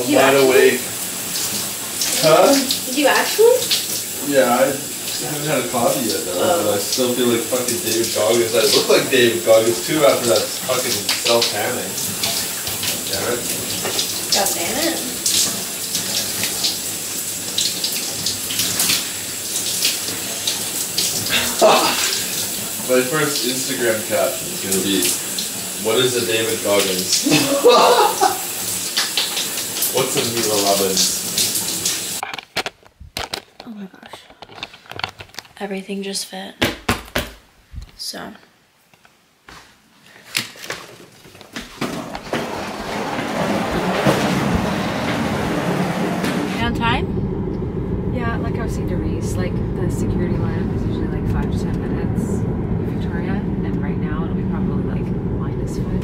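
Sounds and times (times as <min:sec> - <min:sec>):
loud water splashes: 0:00.0 - 0:32.2, 0:42.2 - 0:47.0
water running and splashing: 0:00.0 - 0:32.2, 0:40.4 - 0:47.0
steady rushing noise: 0:43.7 - 0:56.0.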